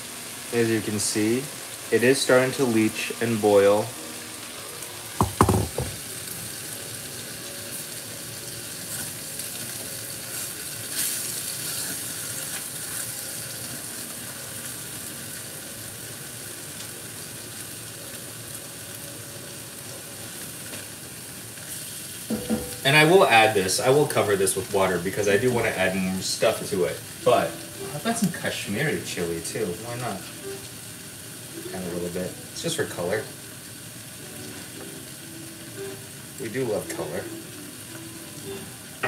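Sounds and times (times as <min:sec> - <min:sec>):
vegetables sizzling in a pot: 0:00.0 - 0:39.0
sharp knocks: 0:05.2 - 0:06.0, 0:22.3 - 0:22.8.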